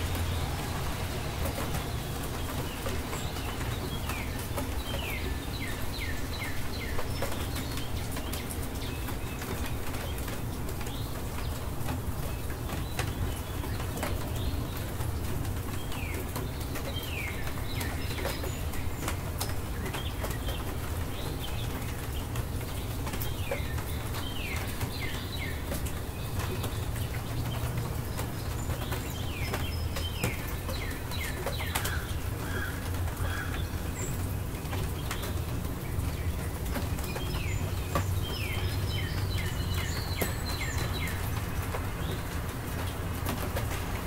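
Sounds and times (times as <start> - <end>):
birds chirping: 0.0 - 44.0.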